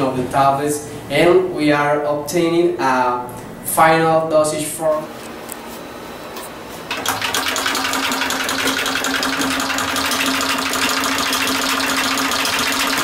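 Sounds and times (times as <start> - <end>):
tablet press humming and clattering: 6.9 - 13.0.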